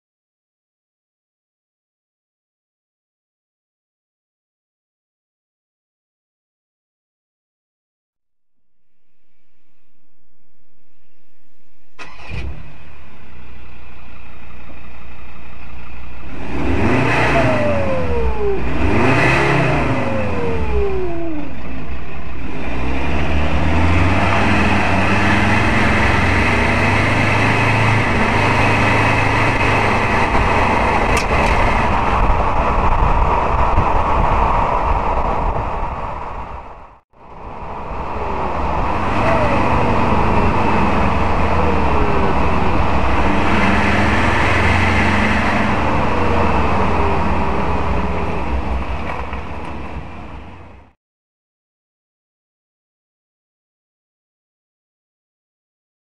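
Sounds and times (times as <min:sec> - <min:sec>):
diesel engine idling and revving: 0:10.1 - 0:51.0.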